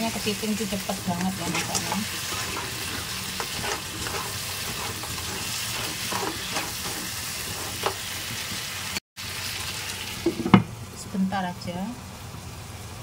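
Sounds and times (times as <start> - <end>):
spatula scraping a wok: 0.0 - 9.0
food sizzling in a wok: 0.0 - 13.0.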